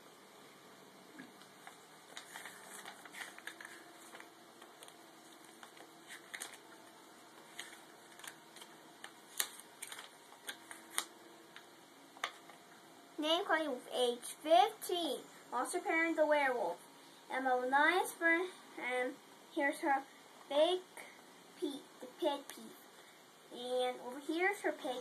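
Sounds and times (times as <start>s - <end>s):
paper pages turning: 1.4s - 11.6s, 12.2s - 12.6s.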